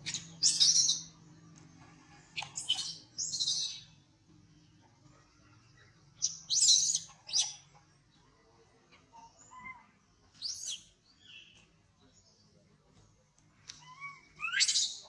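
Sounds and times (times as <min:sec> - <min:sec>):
infant monkey shrieking: 0:13.8 - 0:15.0.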